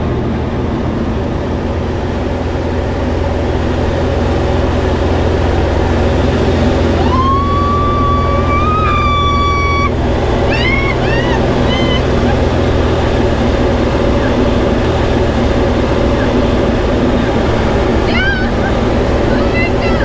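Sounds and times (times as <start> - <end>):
light aircraft propeller engine drone: 0.0 - 20.0
woman squealing: 6.9 - 12.5, 18.1 - 18.8.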